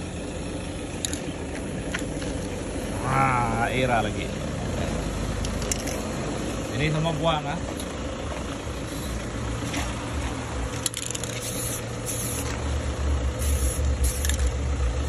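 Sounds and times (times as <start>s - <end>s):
spray can hissing: 11.2s - 12.6s, 13.4s - 14.5s.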